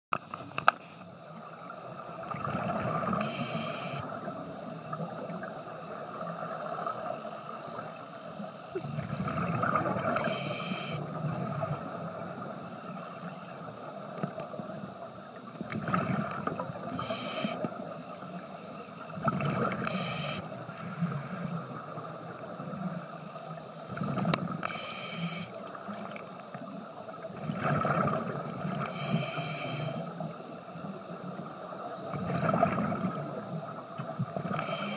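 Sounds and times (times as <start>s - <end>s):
exhaled air bubbling: 8.7s - 12.4s
regulator inhalation hisses: 10.2s - 11.6s, 16.9s - 17.6s, 19.9s - 21.6s, 24.6s - 25.5s, 28.9s - 30.0s, 34.6s - 34.9s.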